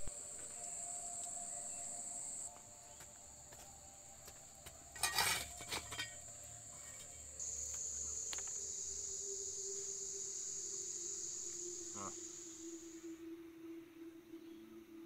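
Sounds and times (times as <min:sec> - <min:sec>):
insects droning: 0:00.0 - 0:13.7
coals raked with a stick: 0:04.8 - 0:08.6.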